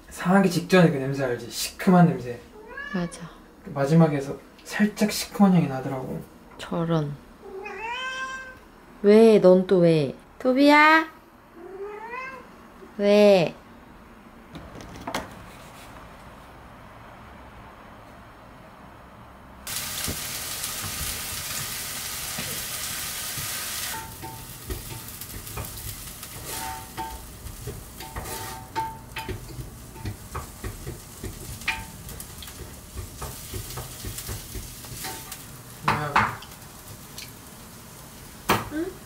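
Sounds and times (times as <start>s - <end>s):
food sizzling in a pan: 19.7s - 39.0s.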